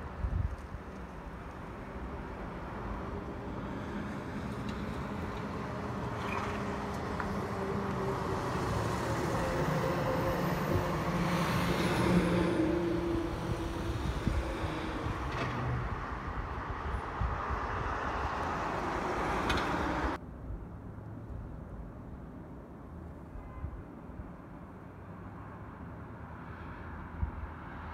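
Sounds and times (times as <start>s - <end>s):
fire trucks driving past: 0.5s - 20.2s.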